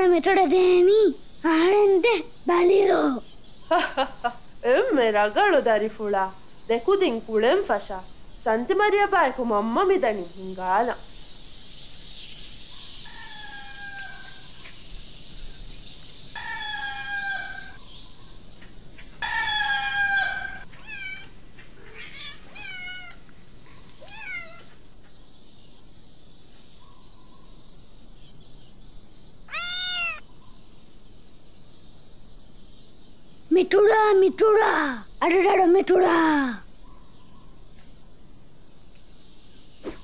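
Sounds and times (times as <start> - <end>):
steady high hiss: 0.0 - 40.0
cat meowing: 13.1 - 14.4, 16.4 - 17.8, 19.2 - 23.2, 24.0 - 24.7, 29.5 - 30.2.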